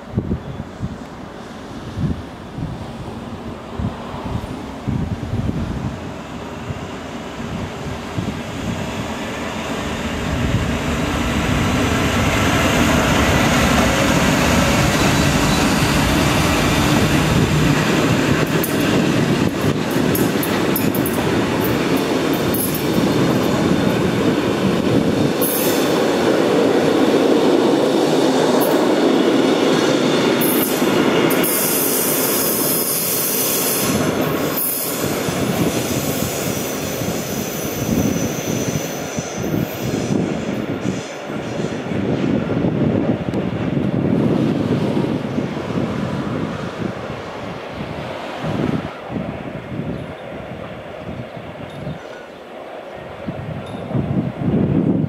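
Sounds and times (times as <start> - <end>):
train rumble: 0.0 - 55.0
train wheels squealing: 13.0 - 17.1, 25.4 - 26.0, 29.8 - 42.3, 51.6 - 52.4.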